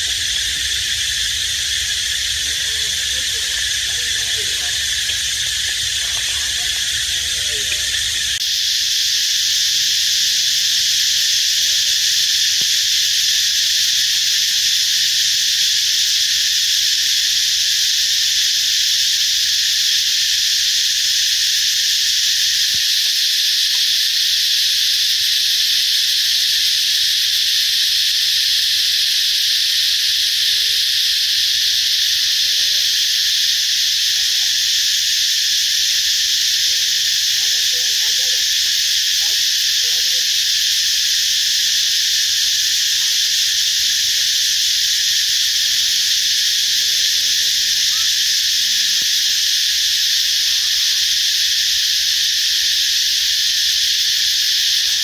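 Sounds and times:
insect chorus drone: 0.0s - 55.0s.

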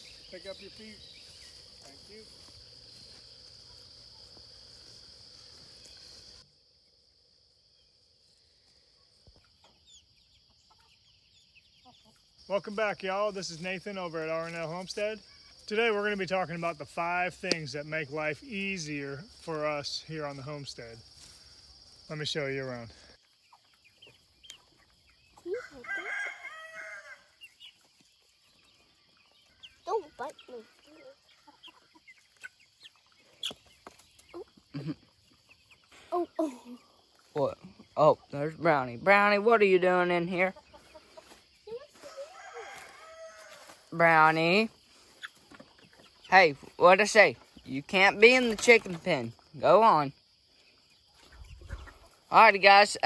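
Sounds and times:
high-pitched insect chorus: 0.0s - 53.0s
chickens clucking softly: 23.2s - 36.1s, 40.5s - 43.7s, 50.8s - 52.3s
rooster crowing: 25.6s - 27.3s, 42.1s - 43.7s.

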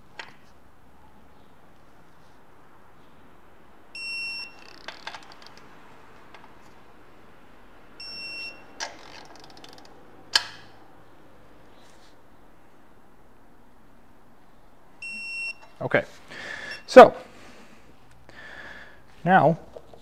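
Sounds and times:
torque wrench beeping: 4.0s - 5.1s, 8.0s - 9.8s.

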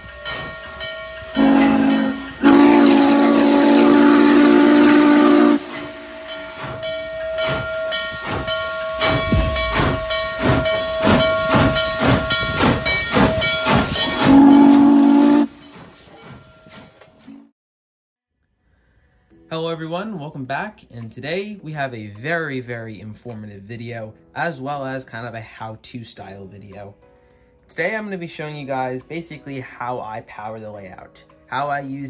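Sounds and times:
steam locomotive exhaust beats: 0.0s - 17.0s
steam locomotive chime whistle: 0.0s - 17.4s.

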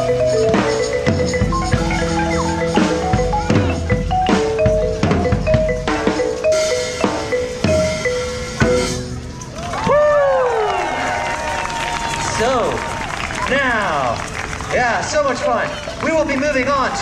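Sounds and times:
drum beat: 0.0s - 9.2s
marimba melody: 0.0s - 9.7s.

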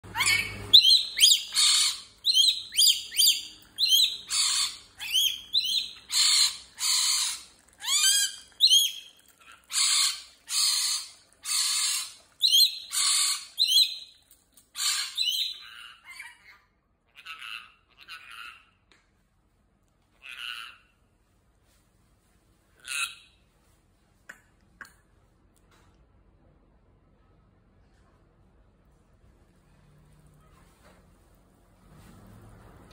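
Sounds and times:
parrot harsh screeches: 0.1s - 14.1s, 14.7s - 18.7s, 20.2s - 21.0s.

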